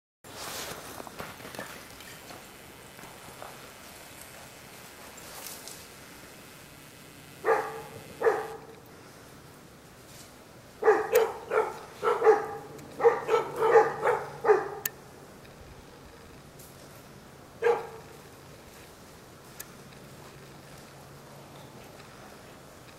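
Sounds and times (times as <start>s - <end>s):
dog barking: 7.4s - 8.7s, 10.8s - 14.9s, 17.6s - 18.1s.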